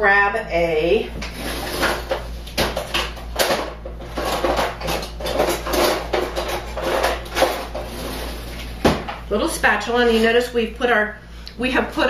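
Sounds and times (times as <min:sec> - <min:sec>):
metal utensils clattering in drawer: 0:02.8 - 0:08.0.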